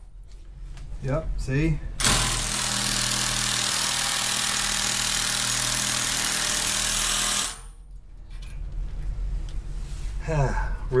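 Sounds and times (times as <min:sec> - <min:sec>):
power tool hammering rattle: 0:02.0 - 0:07.8.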